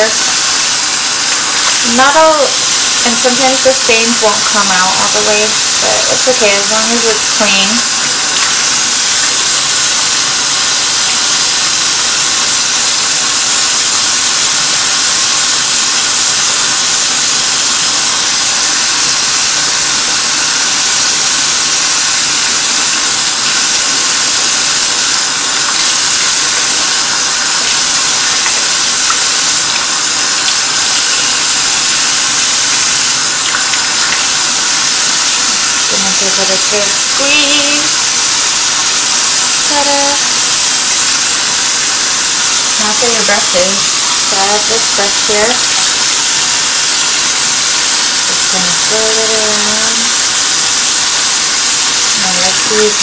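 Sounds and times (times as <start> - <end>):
faucet running into sink: 0.0 - 53.0
wet sponge being squeezed: 25.6 - 38.2.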